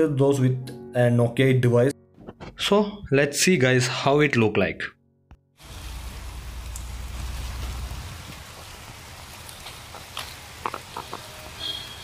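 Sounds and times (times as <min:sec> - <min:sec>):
rain hiss: 0:05.6 - 0:12.0.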